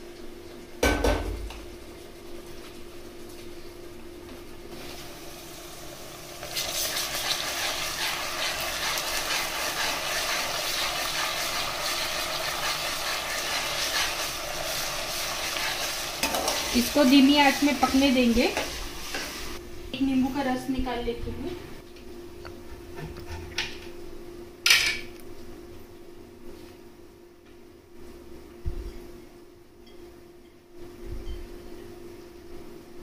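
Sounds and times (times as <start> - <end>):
onions sizzling in hot oil: 4.7 - 20.6
spatula stirring: 6.4 - 19.6.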